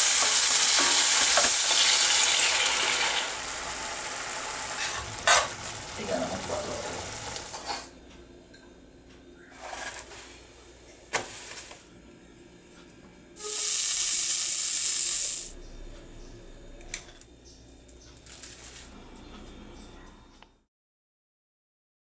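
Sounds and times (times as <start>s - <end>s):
loud even hiss: 13.4s - 15.6s.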